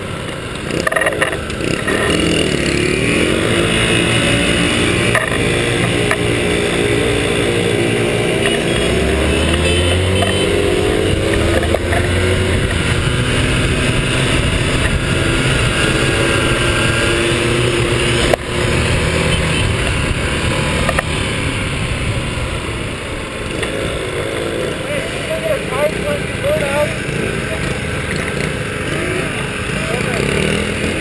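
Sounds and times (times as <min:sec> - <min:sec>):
motorcycle engines humming: 0:00.0 - 0:31.0
rushing wind noise: 0:10.6 - 0:24.2.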